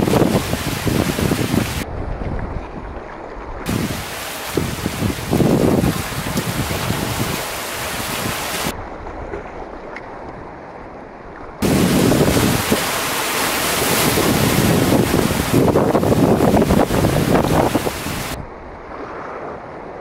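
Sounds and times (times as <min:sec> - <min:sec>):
waves washing over rocks: 0:00.0 - 0:01.8, 0:03.6 - 0:08.8, 0:11.6 - 0:18.4
wind buffeting microphone: 0:00.0 - 0:10.6, 0:11.6 - 0:19.3.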